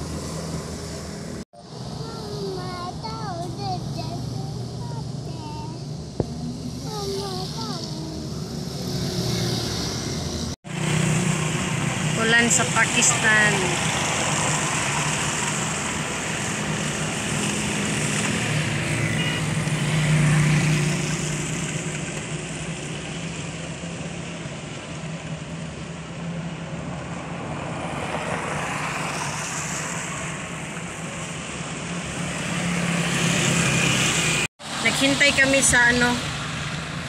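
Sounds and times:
vehicles hissing by on wet road: 0.0 - 37.0.

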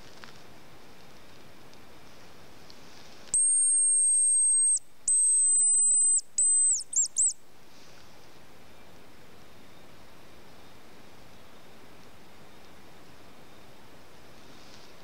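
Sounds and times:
high decoy whistle notes: 3.4 - 7.4.

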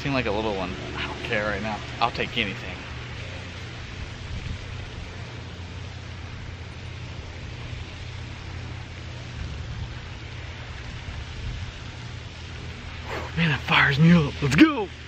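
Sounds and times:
wind buffeting microphone: 3.6 - 5.4.

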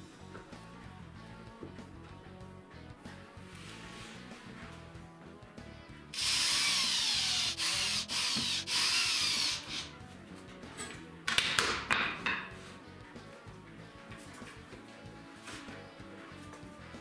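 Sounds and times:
cordless drill whining: 6.2 - 9.9.

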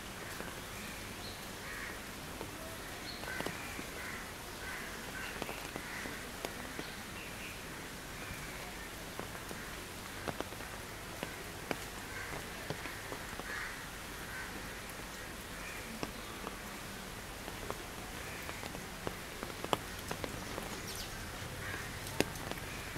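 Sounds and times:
rain falling on foliage: 0.0 - 22.9.

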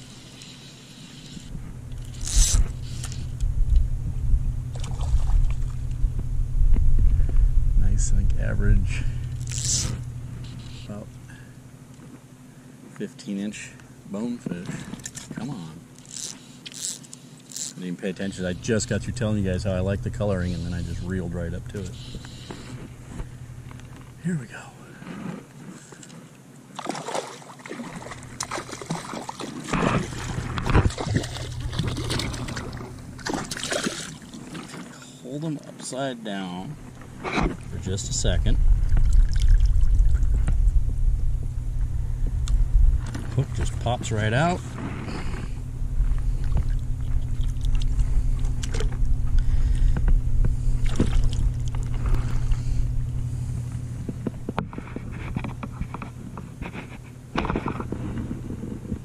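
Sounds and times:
low rumble: 1.5 - 11.4, 18.8 - 24.2, 29.8 - 33.6, 36.8 - 55.3
water splashing and trickling: 26.8 - 35.0, 38.8 - 40.3.

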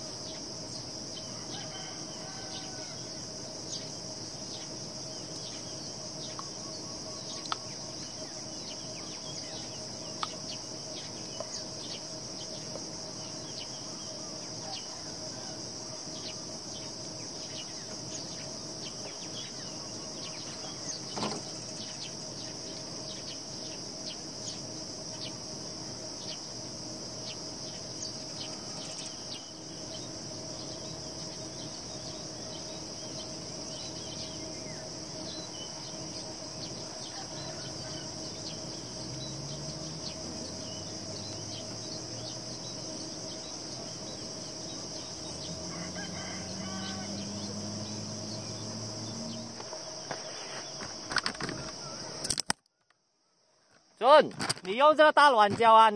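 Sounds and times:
insects droning: 0.0 - 55.9.

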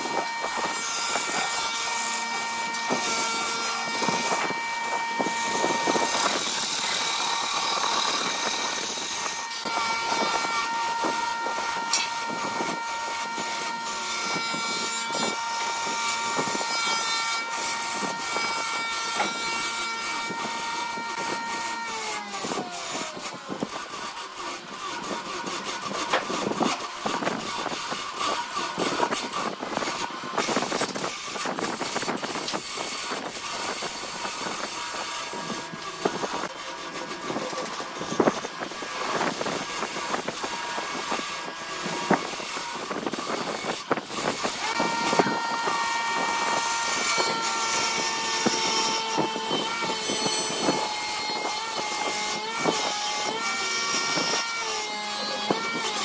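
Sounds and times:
lathe machine whine: 0.0 - 21.7
turning tool scraping wood: 0.0 - 56.0.

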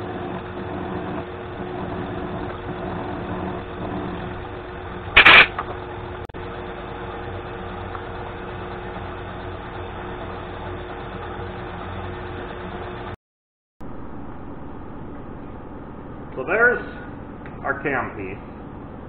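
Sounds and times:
milling machine humming: 0.0 - 13.2
loud clatter: 5.2 - 5.8.

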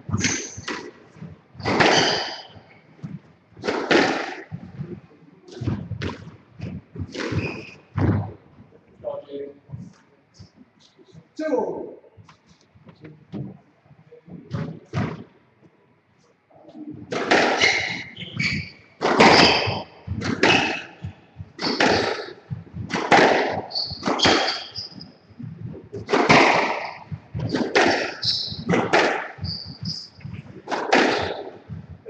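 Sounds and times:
shoes squeaking on wooden floor: 0.0 - 8.8, 16.7 - 32.0
squash ball cracks: 3.6 - 4.6, 17.1 - 18.1, 19.0 - 25.0, 26.0 - 29.4, 30.0 - 31.8.

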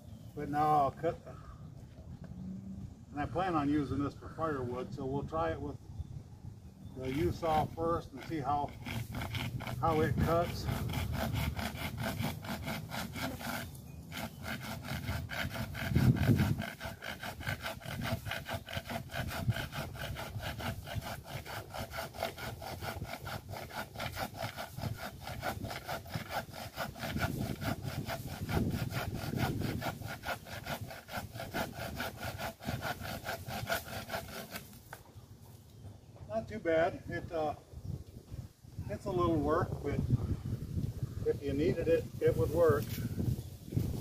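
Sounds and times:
hand saw cutting branch: 7.0 - 35.1, 41.3 - 44.0.

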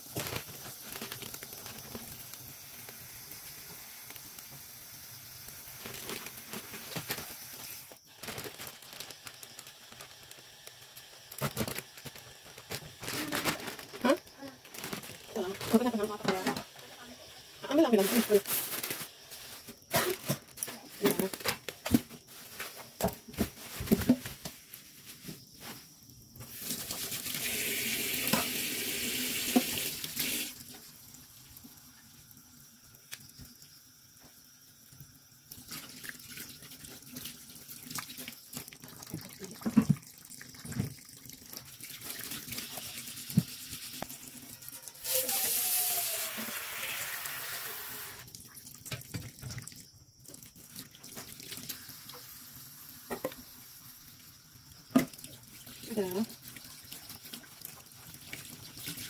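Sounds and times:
tap water running into sink: 26.5 - 33.5, 34.2 - 53.8, 54.6 - 59.0.

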